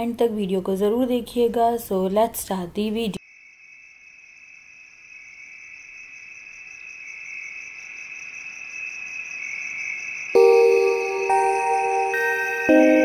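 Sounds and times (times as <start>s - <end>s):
insect chirring: 3.2s - 11.4s
music with mallet notes: 10.4s - 13.0s.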